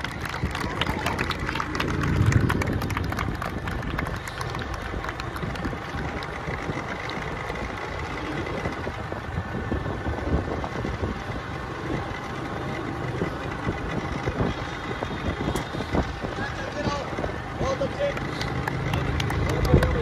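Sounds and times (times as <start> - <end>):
low rumble: 0.0 - 15.4.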